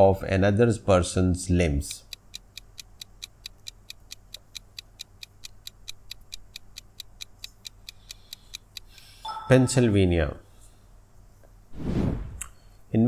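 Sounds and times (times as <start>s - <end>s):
clock ticking: 1.9s - 9.7s.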